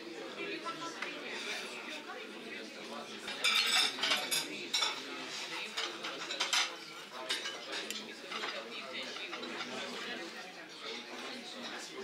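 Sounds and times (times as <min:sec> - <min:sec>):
cutlery clinking on porcelain plate: 0:03.2 - 0:10.1.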